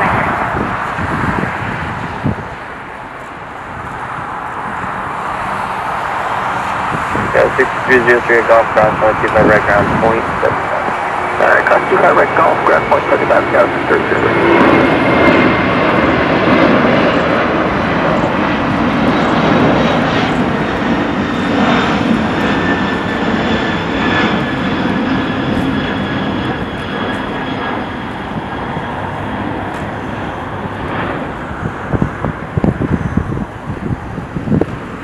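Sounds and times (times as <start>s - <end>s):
jet engines passing by: 0.0s - 35.0s.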